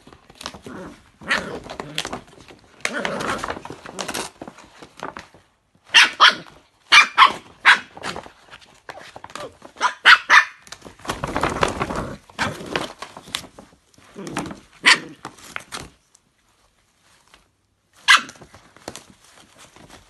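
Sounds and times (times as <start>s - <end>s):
paper bag crinkling and tearing: 0.0s - 5.6s, 7.3s - 10.0s, 10.6s - 16.1s
puppy barking: 5.9s - 8.1s, 9.7s - 10.6s, 14.8s - 15.2s, 18.0s - 18.5s.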